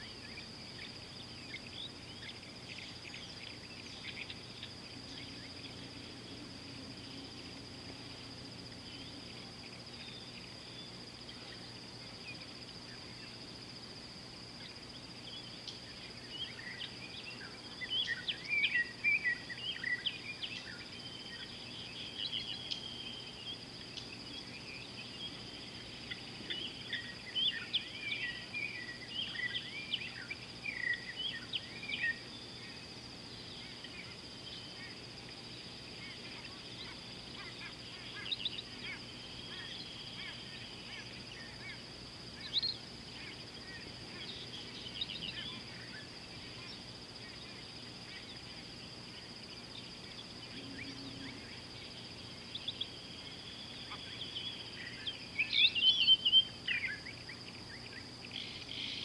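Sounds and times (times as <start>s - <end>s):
birds chirping: 0.0s - 13.4s, 36.0s - 59.0s
high-pitched insect drone: 0.0s - 59.0s.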